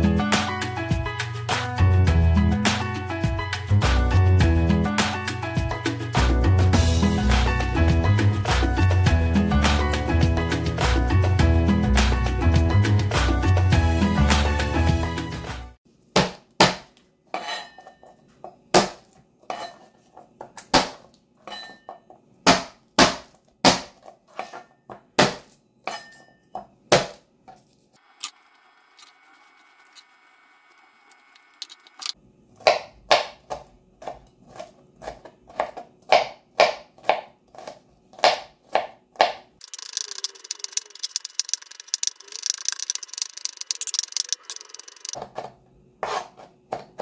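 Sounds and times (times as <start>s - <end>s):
knife mincing strokes: 39.6s - 45.2s.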